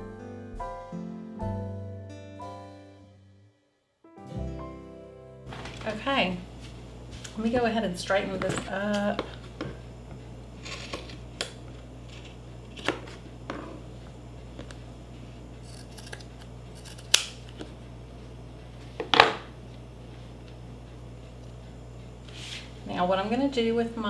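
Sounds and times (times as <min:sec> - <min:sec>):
scissors snipping fabric: 0:15.6 - 0:17.3.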